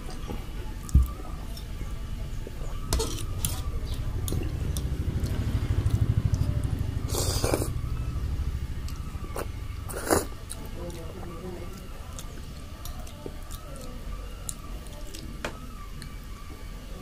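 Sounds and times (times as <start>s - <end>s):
low steady hum: 0.0s - 17.0s
fork scraping a plate: 2.9s - 3.7s
chewing: 3.0s - 7.8s, 8.9s - 15.3s.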